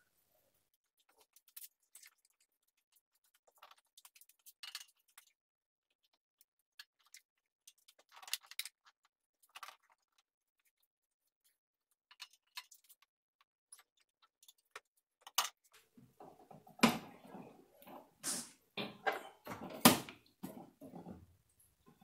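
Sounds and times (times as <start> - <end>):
metal knocks and rattling: 18.8 - 21.3.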